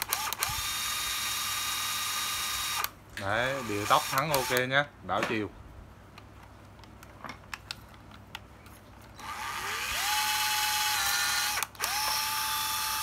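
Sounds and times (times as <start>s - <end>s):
cordless drill motor whining: 0.0s - 4.6s, 9.2s - 13.0s.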